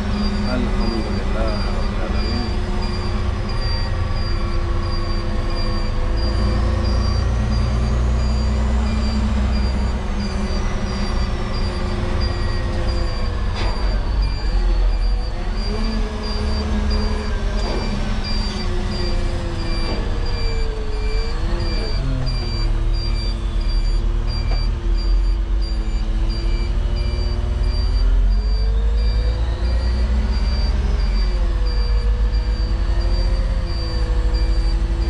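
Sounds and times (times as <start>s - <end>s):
diesel truck engine rumble: 0.0s - 35.0s.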